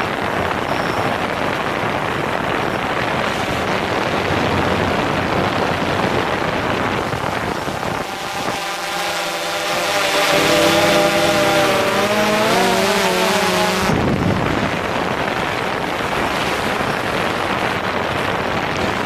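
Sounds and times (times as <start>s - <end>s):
wind noise on microphone: 0.0s - 19.0s
drone propellers whining: 6.3s - 14.8s.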